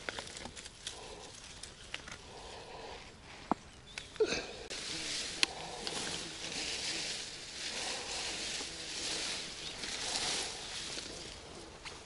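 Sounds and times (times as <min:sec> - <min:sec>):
hand rustling through grass: 0:03.1 - 0:12.0.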